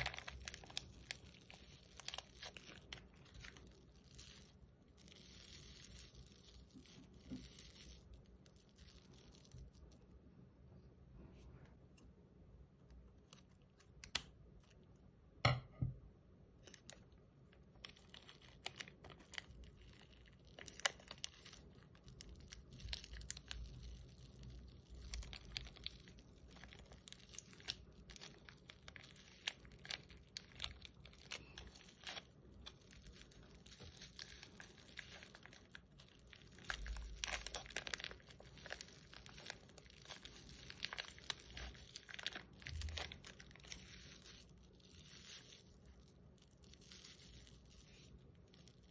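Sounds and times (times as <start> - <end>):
slime squeezed crackling: 0.0 - 10.0, 16.6 - 48.9.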